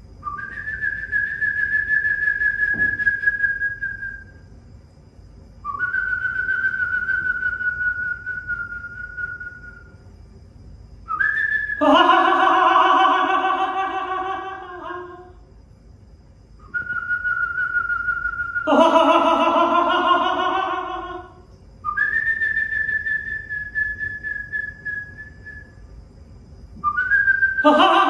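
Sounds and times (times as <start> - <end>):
person whistling: 0.2 - 4.4, 5.7 - 9.9, 11.1 - 12.3, 16.6 - 18.8, 21.8 - 25.7, 26.8 - 28.0.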